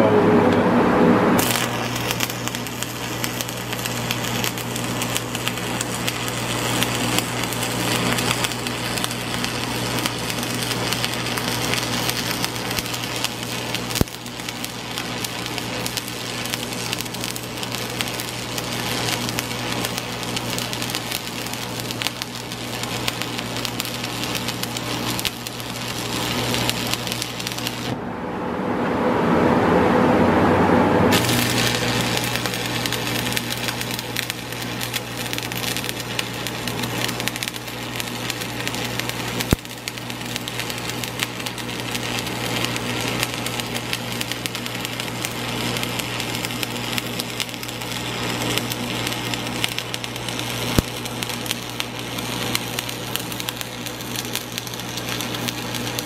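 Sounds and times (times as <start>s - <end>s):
electrical hum: 0.0s - 56.0s
welding arc crackling: 1.4s - 28.0s, 31.1s - 56.0s.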